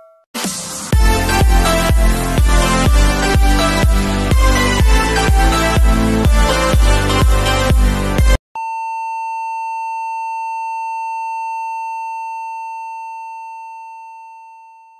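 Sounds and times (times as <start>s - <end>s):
electronic dance music: 0.4s - 8.4s.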